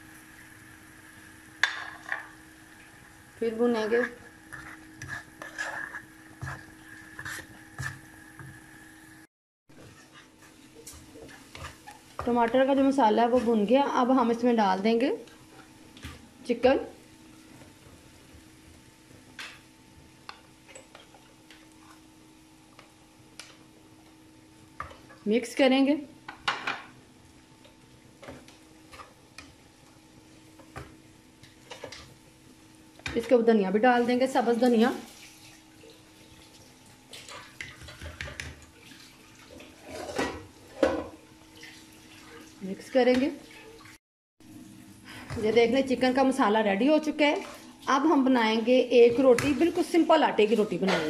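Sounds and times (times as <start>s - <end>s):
food frying in a pan: 0.0s - 51.0s
spatula scraping pan: 3.6s - 8.6s, 9.8s - 16.3s, 28.2s - 29.6s, 37.2s - 41.1s
spatula scraping paper plate: 4.0s - 8.0s.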